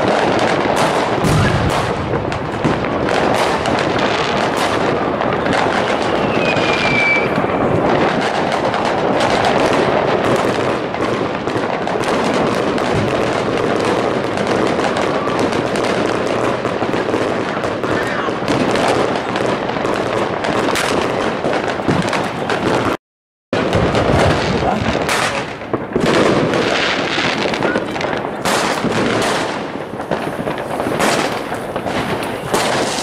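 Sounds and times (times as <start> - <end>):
deep firework boom: 0.0 - 23.0, 23.6 - 33.0
firecrackers crackling and banging: 0.0 - 23.0, 23.6 - 33.0
falling firework whistle: 1.2 - 2.0, 5.3 - 9.5.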